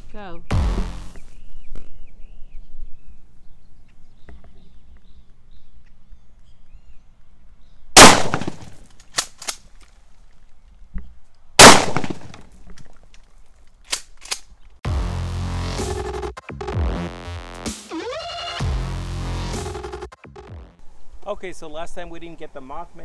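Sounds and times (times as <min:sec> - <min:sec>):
shotgun shots: 0:08.0 - 0:09.6, 0:11.6 - 0:12.4.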